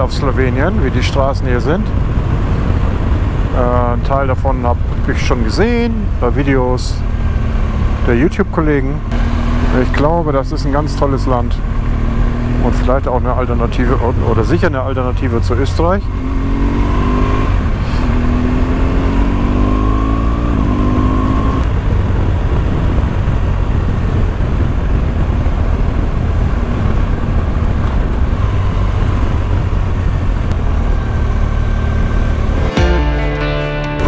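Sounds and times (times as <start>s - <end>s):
wind noise: 0.0s - 6.2s, 15.8s - 32.4s
motorcycle engine accelerating: 0.0s - 34.0s
road noise: 0.0s - 34.0s.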